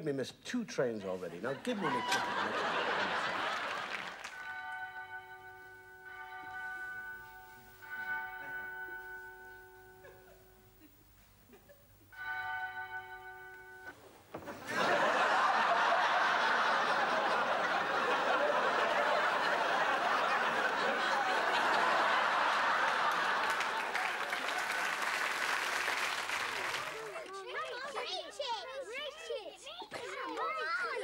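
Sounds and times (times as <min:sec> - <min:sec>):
audience laughing: 0:01.3 - 0:04.3, 0:14.5 - 0:27.9
audience applause: 0:01.7 - 0:04.5, 0:14.7 - 0:27.4.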